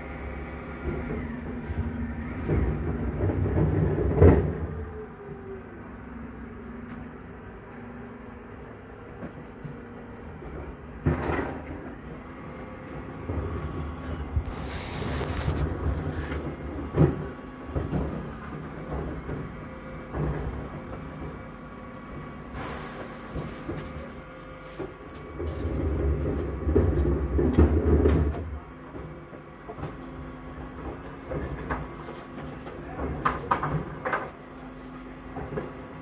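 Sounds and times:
lorry engine running: 0:00.0 - 0:36.0
wheelie bins knocking and clattering: 0:02.4 - 0:04.8, 0:09.2 - 0:12.3, 0:15.5 - 0:21.6, 0:23.4 - 0:36.0.

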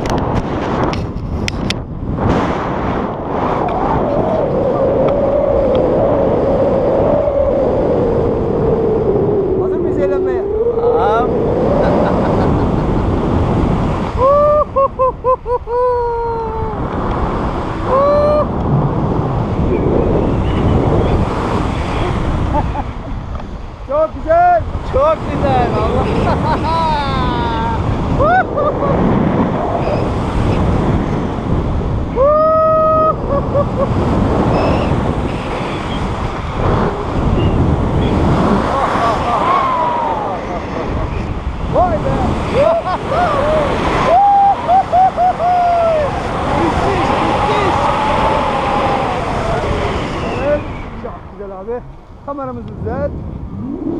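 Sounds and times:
wind rushing over microphone: 0:00.0 - 0:53.9
man whooping and yelling: 0:14.2 - 0:16.8, 0:17.8 - 0:18.6, 0:26.7 - 0:28.6, 0:32.2 - 0:33.9, 0:38.9 - 0:40.5, 0:41.9 - 0:50.6.

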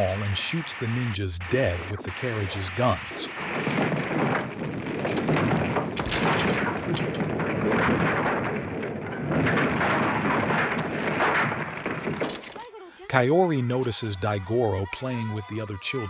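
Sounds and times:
wall crashing and rumbling: 0:02.2 - 0:12.6.

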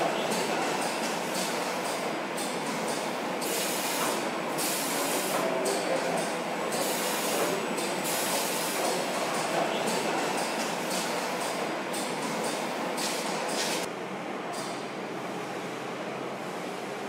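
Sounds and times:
spray guns hissing: 0:03.4 - 0:05.4.

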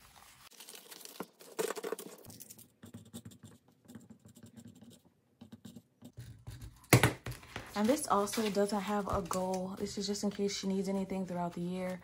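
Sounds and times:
paper banknotes rustling: 0:00.0 - 0:02.6, 0:07.4 - 0:09.5
pen scratching on paper: 0:02.8 - 0:06.5.

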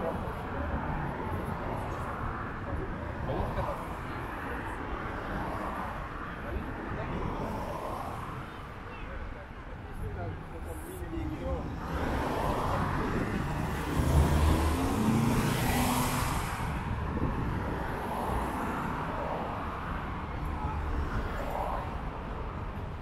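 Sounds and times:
steady traffic hum: 0:00.0 - 0:23.0.

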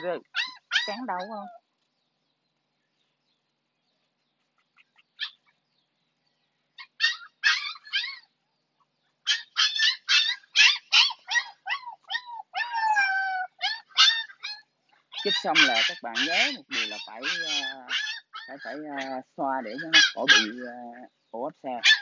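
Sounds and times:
puppy yelping and crying: 0:00.0 - 0:01.6, 0:04.9 - 0:05.6, 0:06.7 - 0:08.4, 0:09.1 - 0:21.0, 0:21.8 - 0:22.0.

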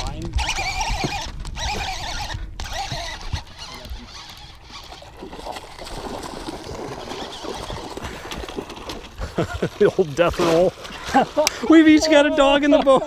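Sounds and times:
fish splashing in water: 0:03.6 - 0:11.7.

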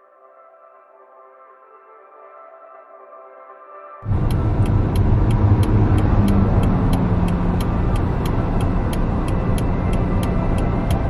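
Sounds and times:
car engine and road hum: 0:04.0 - 0:11.0
turn signal ticking: 0:04.0 - 0:11.0.

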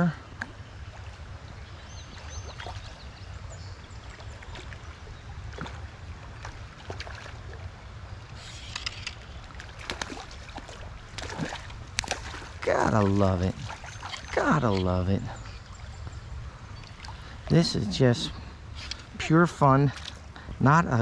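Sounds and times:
stream water running: 0:00.0 - 0:21.0
small splashes and clicks: 0:05.5 - 0:07.5, 0:08.6 - 0:14.5, 0:19.9 - 0:20.2.

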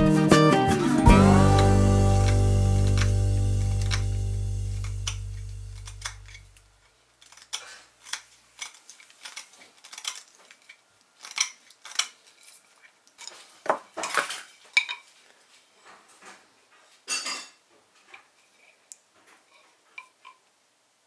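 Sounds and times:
background music: 0:00.0 - 0:06.4
knife scraping wood: 0:07.2 - 0:14.5.

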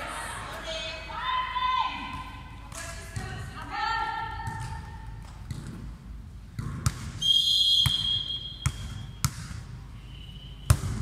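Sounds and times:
hands slapping volleyball: 0:02.6 - 0:03.7, 0:06.6 - 0:07.2.

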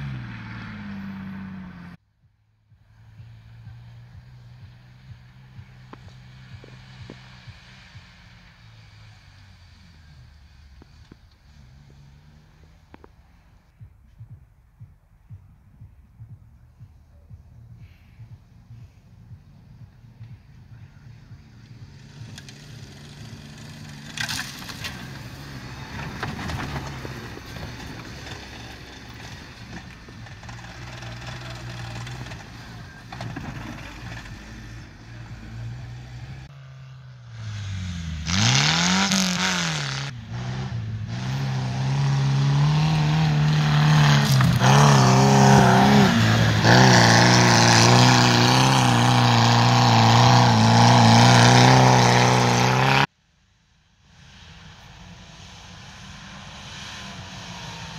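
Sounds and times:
buggy engine revving: 0:00.0 - 0:02.0, 0:02.8 - 0:13.8, 0:18.6 - 0:53.1, 0:54.2 - 0:57.9
suv engine running: 0:00.0 - 0:36.5.

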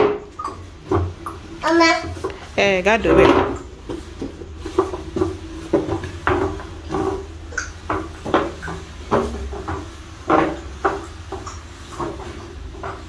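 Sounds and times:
plastic chair scraping on tiles: 0:00.8 - 0:07.4.

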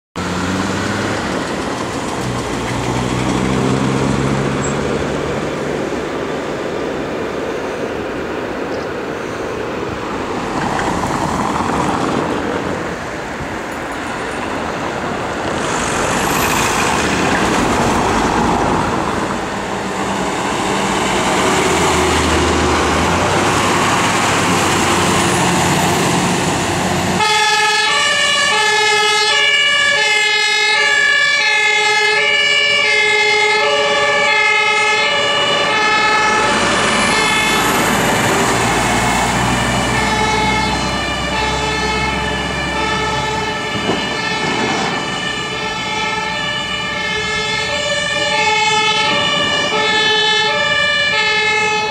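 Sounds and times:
diesel engines and road noise: 0:00.2 - 0:51.9
two-tone air siren: 0:27.2 - 0:38.5, 0:39.3 - 0:51.9.

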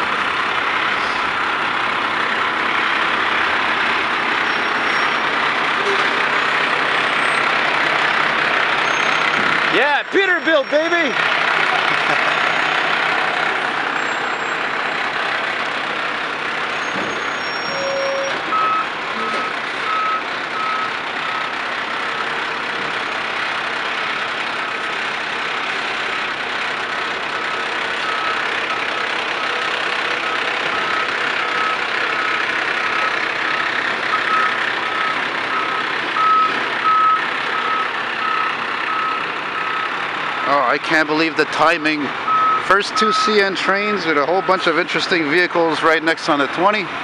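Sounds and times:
diesel dump trucks running: 0:00.0 - 0:47.0
truck backup alarm beeping: 0:08.8 - 0:09.5, 0:12.0 - 0:14.6, 0:16.7 - 0:21.6, 0:27.4 - 0:40.5, 0:42.2 - 0:44.9.

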